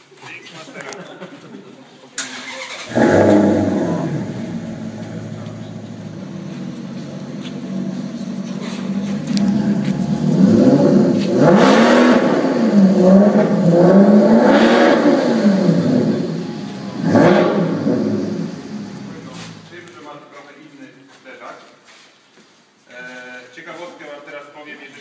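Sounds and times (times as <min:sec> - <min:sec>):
car engine starting and revving: 0:02.2 - 0:19.8.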